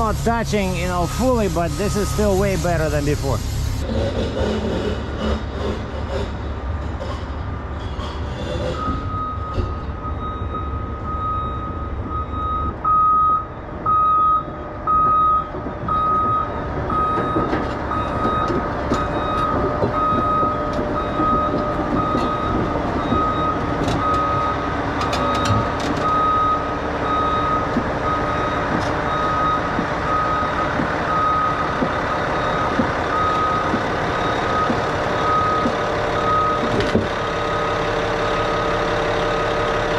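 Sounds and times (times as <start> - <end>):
backup alarm beeping: 0.0 - 3.3, 8.8 - 36.8
diesel engine running: 0.0 - 39.9.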